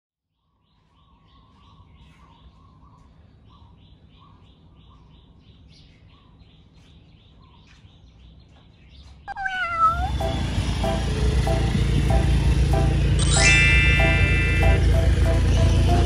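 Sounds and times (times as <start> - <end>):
cat meow: 9.3 - 10.2
music: 10.2 - 16.0.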